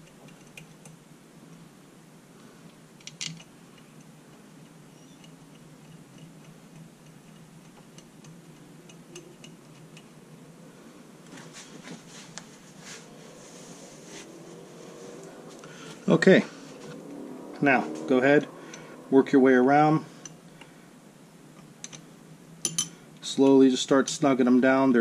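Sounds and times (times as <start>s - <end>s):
small metallic clicks: 0.0s - 1.6s, 2.7s - 10.2s
faint steady hum: 0.0s - 25.0s.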